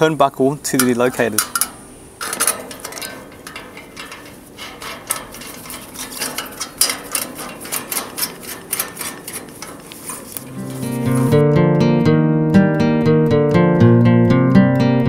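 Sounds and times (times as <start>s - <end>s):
metallic tool clicks: 0.8s - 10.6s.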